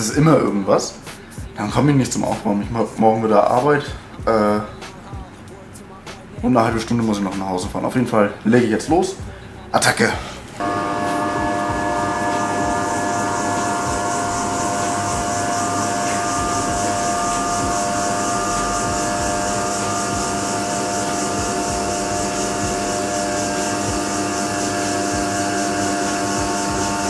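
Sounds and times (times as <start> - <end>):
car lift motor and pump running: 10.6 - 27.0.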